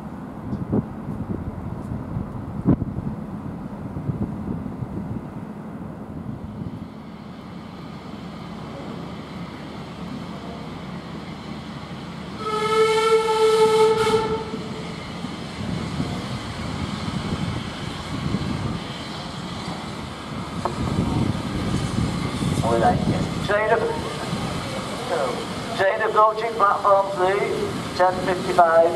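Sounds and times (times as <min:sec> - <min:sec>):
steam locomotive whistle blast: 0:12.4 - 0:14.7.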